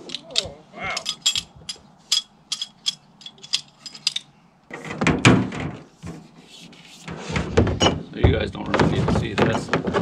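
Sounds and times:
metallic clicks of hand tools: 0:00.0 - 0:04.3
rough metal clatter: 0:00.0 - 0:06.2.

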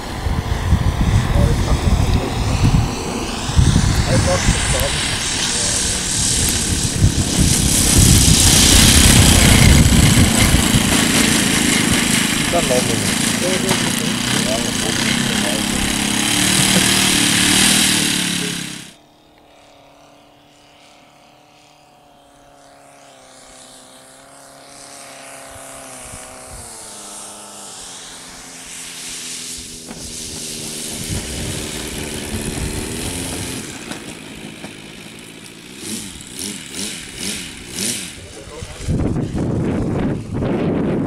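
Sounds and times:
model airplane engine: 0:00.0 - 0:41.0.

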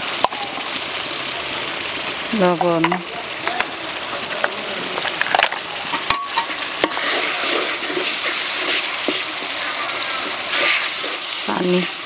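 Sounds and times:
food sizzling in oil: 0:00.0 - 0:12.0
metal spatula scraping pan: 0:05.0 - 0:12.0.

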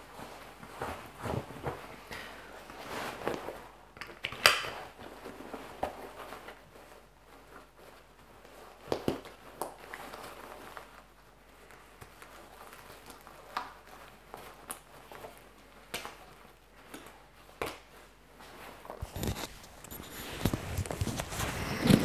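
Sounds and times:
webbing rustling: 0:09.4 - 0:22.0.

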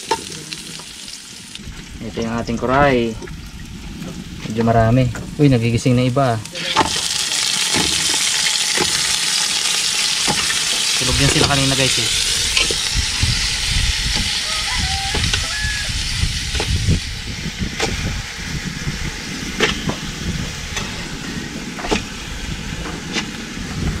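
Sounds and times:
food sizzling in a pot: 0:00.0 - 0:04.2, 0:05.5 - 0:24.0
low rumble: 0:01.4 - 0:07.2, 0:11.0 - 0:24.0.

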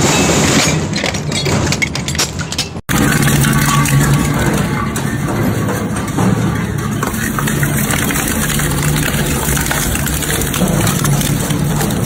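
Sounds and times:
shredder grinding metal: 0:02.9 - 0:12.0.

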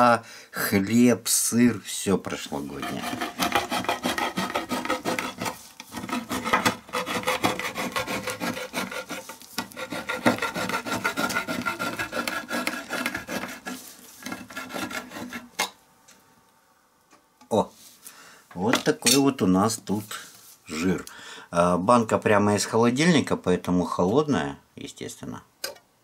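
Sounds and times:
can opener rasping metal: 0:02.6 - 0:15.6.

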